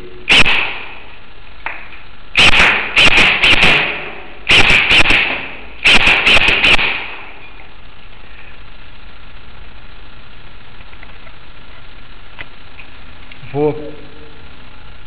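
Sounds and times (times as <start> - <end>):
airsoft gun shots: 0.3 - 1.1, 1.7 - 7.4.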